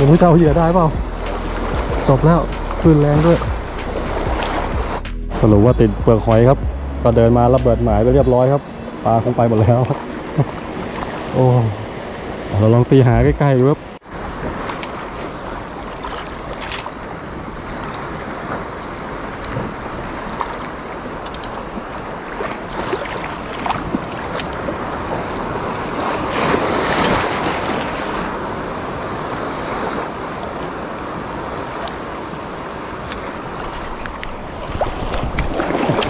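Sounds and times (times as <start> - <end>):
wind on microphone: 0.0 - 8.6, 9.3 - 36.0
sea waves splashing: 0.0 - 36.0.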